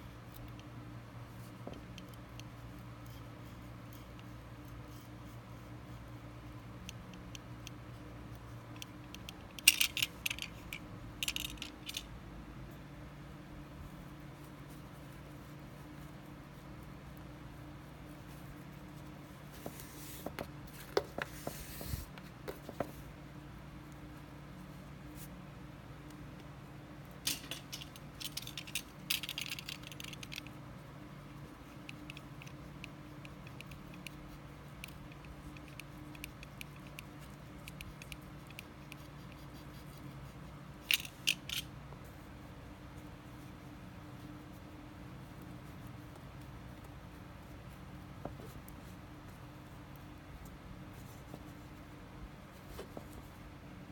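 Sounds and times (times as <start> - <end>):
low steady hum: 0.0 - 53.9
cord rustling and clicking: 6.8 - 12.1, 27.1 - 42.2.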